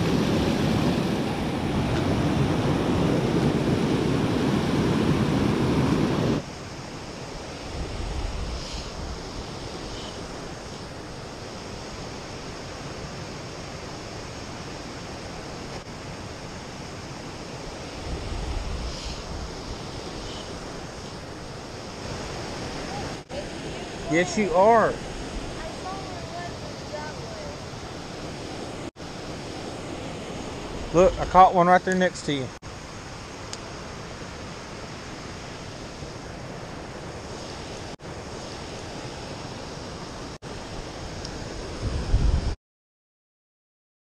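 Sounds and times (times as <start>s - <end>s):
river water rushing over rocks: 20.5s - 40.9s.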